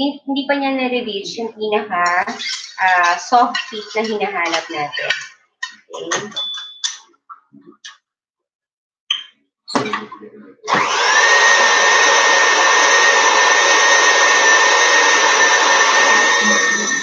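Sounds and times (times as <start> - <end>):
stand mixer whirring: 10.7 - 17.0.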